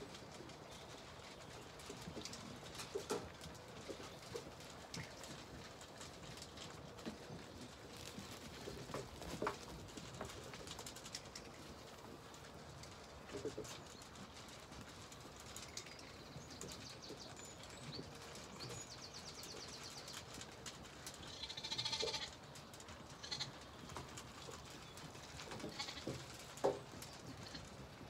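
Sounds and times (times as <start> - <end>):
sheep bleating: 21.4 - 22.3.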